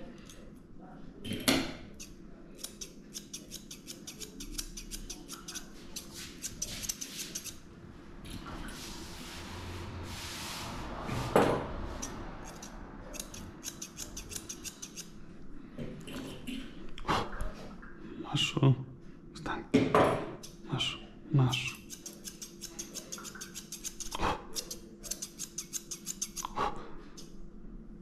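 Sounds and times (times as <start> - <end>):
scissors snipping dog fur: 1.9 - 7.6, 12.0 - 15.1, 21.6 - 26.6.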